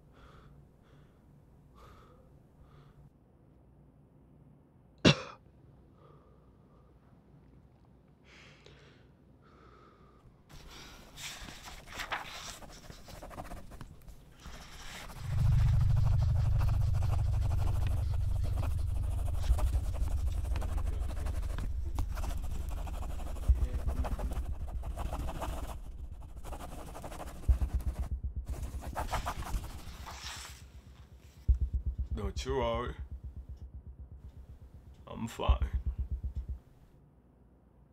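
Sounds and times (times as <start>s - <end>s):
deep low rumble: 14.6s - 36.9s.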